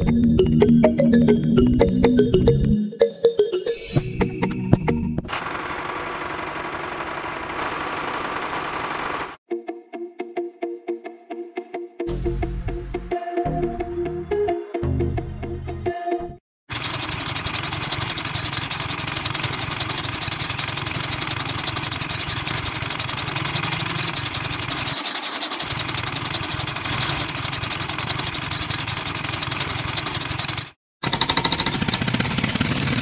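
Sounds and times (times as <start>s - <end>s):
small motor buzzing rattle: 16.7s - 33.0s.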